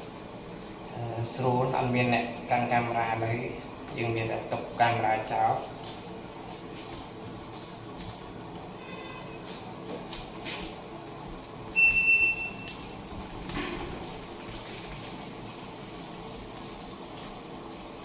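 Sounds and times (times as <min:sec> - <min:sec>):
loud high electronic beep: 0:11.7 - 0:12.8.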